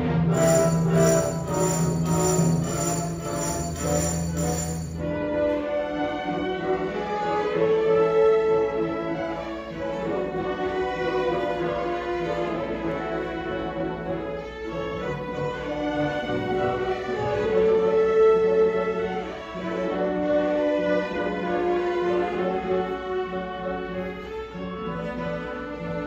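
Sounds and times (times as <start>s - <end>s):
bowed strings sustained notes: 0.0s - 5.2s
orchestra playing: 0.0s - 26.0s.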